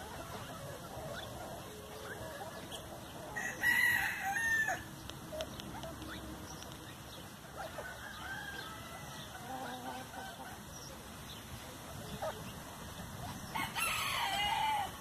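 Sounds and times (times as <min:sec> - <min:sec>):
chickens clucking: 0:00.0 - 0:15.0
rooster crowing: 0:03.4 - 0:04.8, 0:07.8 - 0:09.4, 0:13.5 - 0:15.0.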